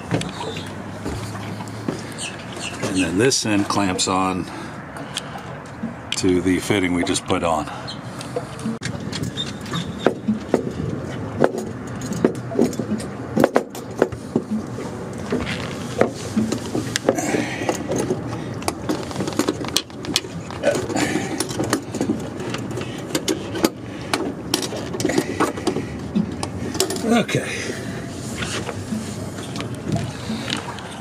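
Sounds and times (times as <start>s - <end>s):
hose handling noise: 8.2s - 27.4s, 28.1s - 31.0s.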